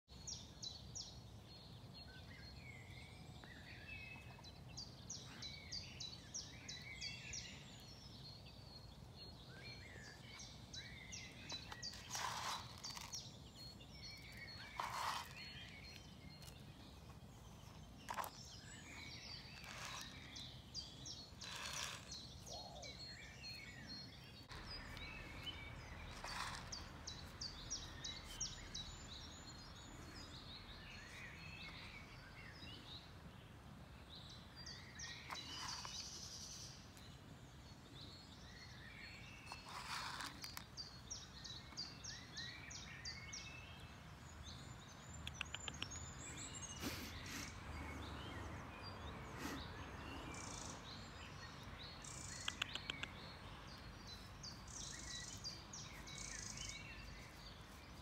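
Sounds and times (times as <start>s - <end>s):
songbirds singing and chirping: 0.1s - 58.0s.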